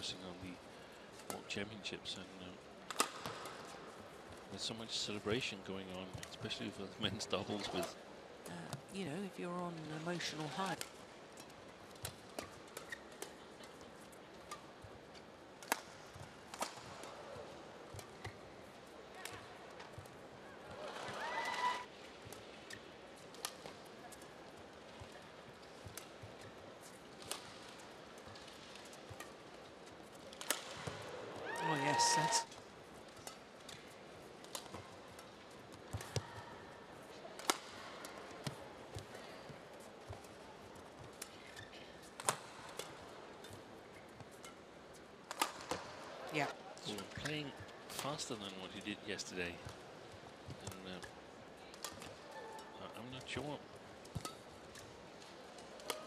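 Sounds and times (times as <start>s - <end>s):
racket striking shuttlecock: 15.6s - 17.2s, 30.2s - 31.0s.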